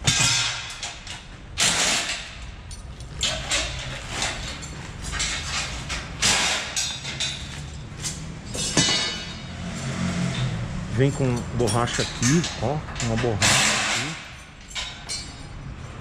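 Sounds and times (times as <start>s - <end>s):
scraping and rustling: 3.2s - 9.8s.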